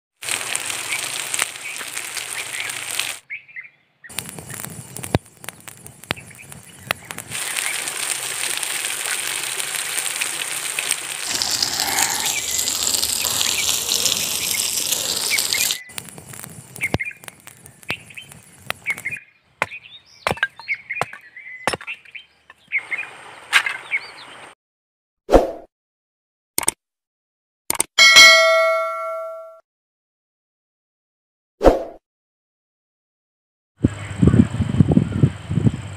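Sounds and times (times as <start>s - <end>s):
food sizzling in oil: 0.2s - 3.2s, 4.1s - 19.2s
birds chirping: 0.9s - 7.8s, 11.2s - 23.2s, 23.8s - 24.5s.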